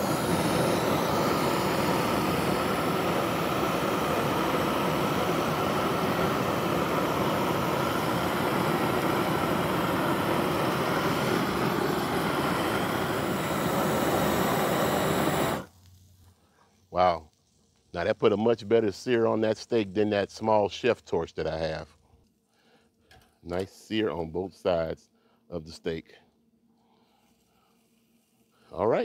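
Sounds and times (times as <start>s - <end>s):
propane torch blasting flame: 0.0s - 16.0s.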